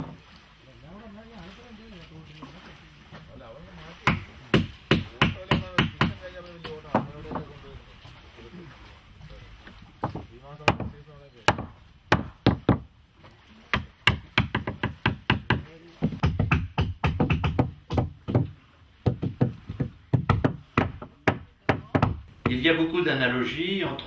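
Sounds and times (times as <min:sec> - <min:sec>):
tool knocking on wooden frames: 0:04.0 - 0:07.6, 0:10.0 - 0:12.9, 0:13.7 - 0:22.8.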